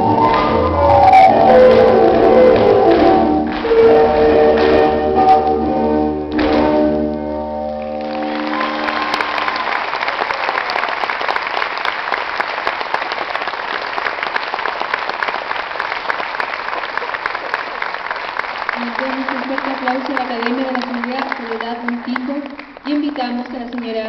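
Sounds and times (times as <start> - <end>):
audience applause: 7.8 - 23.9.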